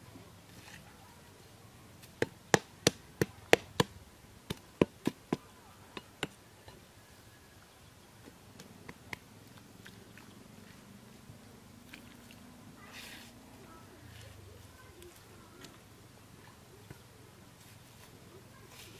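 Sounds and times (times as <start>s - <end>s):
sickle chopping wet ground: 2.0s - 6.8s, 8.2s - 10.8s.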